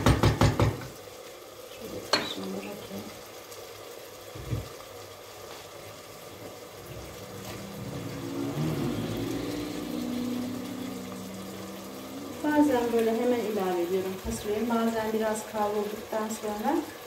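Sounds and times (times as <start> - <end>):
low droning hum: 6.8 - 14.2.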